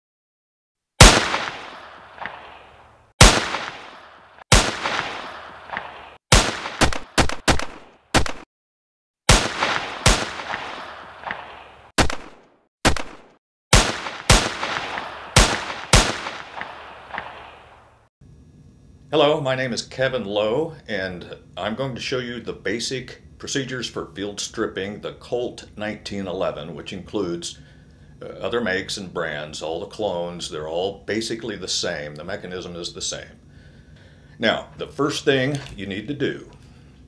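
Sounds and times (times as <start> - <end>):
gunshots with echo: 1.0 - 8.5, 9.3 - 17.9.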